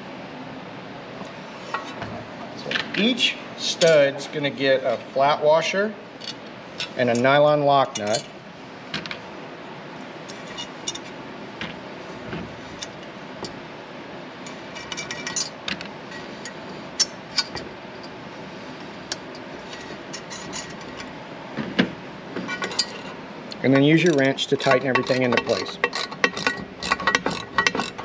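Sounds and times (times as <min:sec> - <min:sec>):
washers and nuts clinking: 0:01.6 - 0:04.1, 0:06.2 - 0:09.2, 0:14.4 - 0:18.2, 0:18.9 - 0:28.0.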